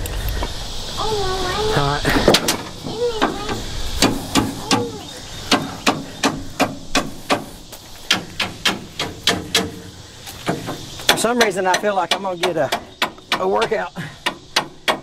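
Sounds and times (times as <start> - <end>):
sharp knocks on metal: 2.3 - 4.9, 5.5 - 7.5, 8.1 - 9.8.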